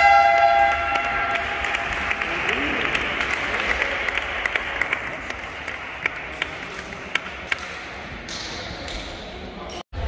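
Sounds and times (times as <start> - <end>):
spectators applauding: 0.3 - 7.7.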